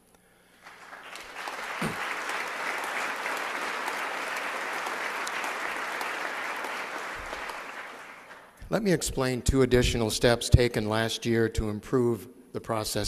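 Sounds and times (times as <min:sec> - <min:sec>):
audience applauding: 0:00.6 - 0:08.6.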